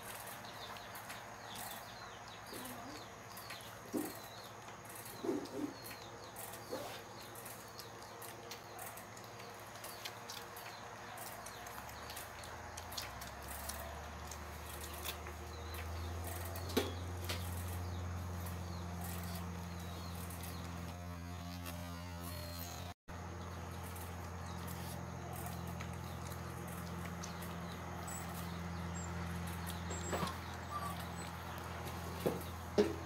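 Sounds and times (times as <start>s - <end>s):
puppies suckling: 24.0s - 32.8s.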